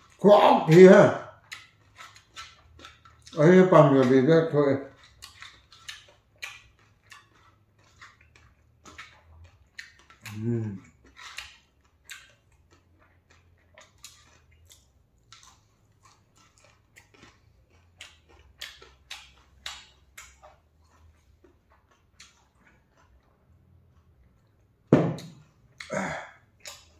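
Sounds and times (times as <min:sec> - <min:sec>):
person chewing: 0:00.0 - 0:26.9
person humming briefly: 0:10.3 - 0:10.8.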